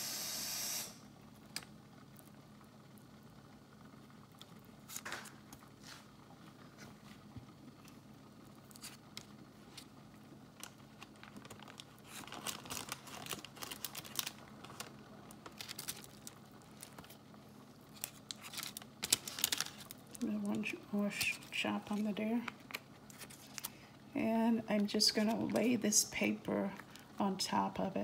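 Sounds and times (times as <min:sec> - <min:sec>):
paper wrapper crinkling: 0:10.6 - 0:23.9.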